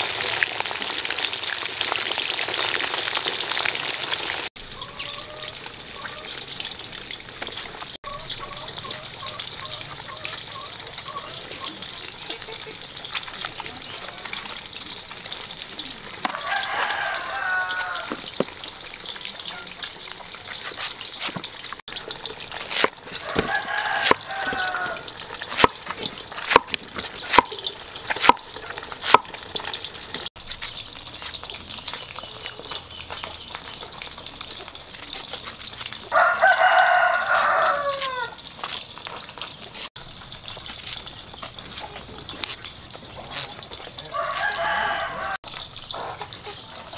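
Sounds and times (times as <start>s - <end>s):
rooster crowing: 16.2s - 18.2s, 23.2s - 25.1s, 36.1s - 38.4s, 44.0s - 45.4s
cleaver chopping on wooden block: 25.5s - 25.8s, 26.4s - 28.4s, 29.0s - 29.3s.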